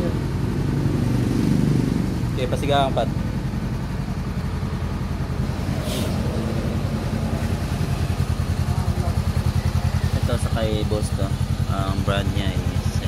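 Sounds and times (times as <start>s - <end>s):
motorcycle engine idling: 0.0s - 13.0s
brief hiss: 5.8s - 6.2s.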